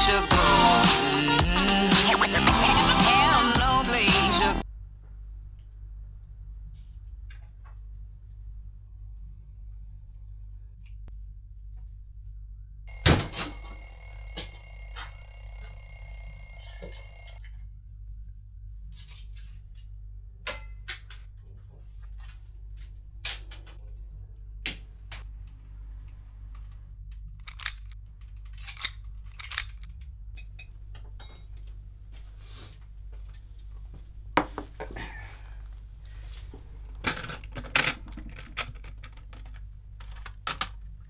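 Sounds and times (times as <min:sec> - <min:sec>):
steady low hum: 0:04.6 - 0:20.5
alarm ringing: 0:12.9 - 0:17.4.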